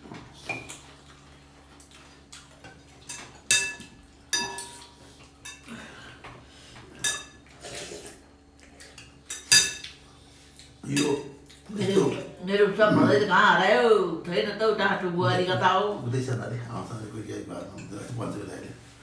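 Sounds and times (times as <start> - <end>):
spoon clinking against ceramic bowl: 3.1 - 5.6.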